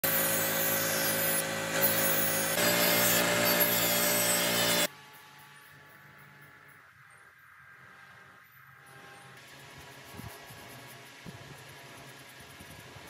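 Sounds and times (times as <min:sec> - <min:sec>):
rotary tool whining while sanding: 0:00.0 - 0:05.3, 0:08.1 - 0:13.0.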